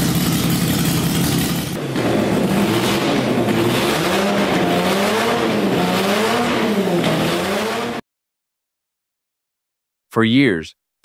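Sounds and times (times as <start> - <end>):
rotary engine revving: 1.1 - 8.0.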